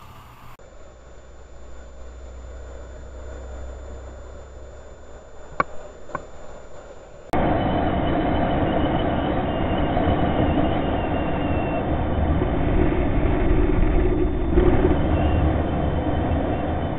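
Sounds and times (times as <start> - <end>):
motorcycle engine rumble: 0.0 - 7.4
road noise: 0.0 - 16.9
rushing wind: 0.7 - 16.9.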